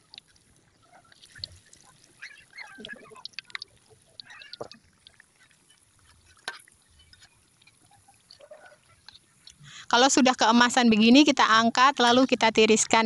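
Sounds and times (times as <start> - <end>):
oil crackling and popping: 0.0 - 9.7.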